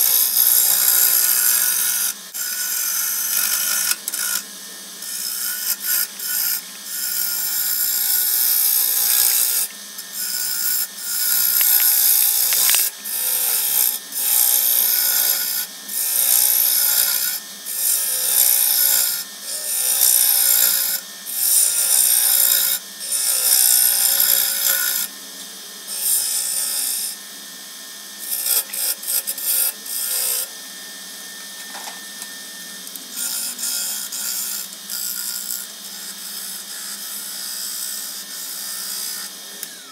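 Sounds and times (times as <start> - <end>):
gouge cutting wood hissing: 0.0 - 25.1
wood lathe humming: 0.0 - 39.9.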